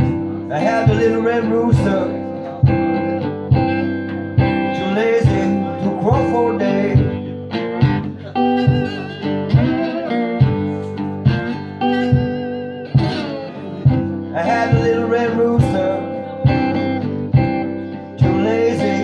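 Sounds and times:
slide guitar blues: 0.0 - 19.0.

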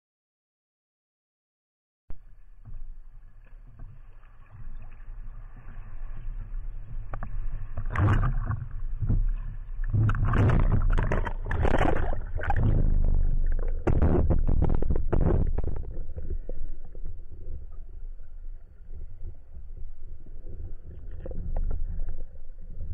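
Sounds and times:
low rumble: 2.1 - 22.9
sea water sloshing and splashing: 2.2 - 22.9.

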